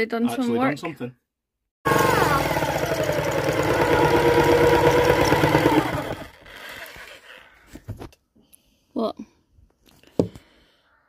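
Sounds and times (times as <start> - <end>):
jigsaw cutting wood: 1.9 - 7.4.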